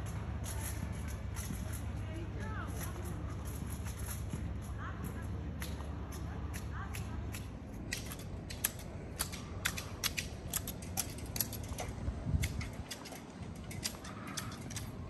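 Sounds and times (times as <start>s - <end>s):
hedge shears snipping: 5.0s - 15.0s.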